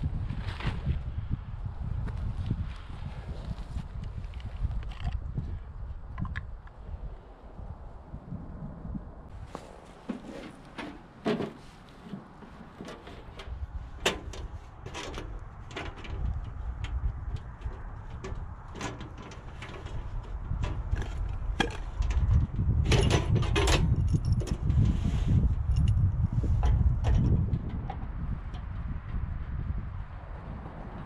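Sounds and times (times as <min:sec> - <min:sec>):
wind rumble on microphone: 0:00.0 - 0:31.0
camp stove clicks and knocks: 0:10.1 - 0:24.7, 0:26.6 - 0:29.2.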